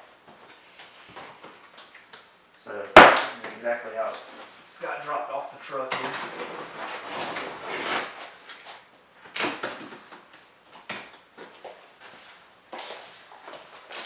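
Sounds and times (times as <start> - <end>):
packing tape tearing: 6.0 - 8.6, 9.2 - 11.2
cardboard flaps scraping: 6.0 - 8.8.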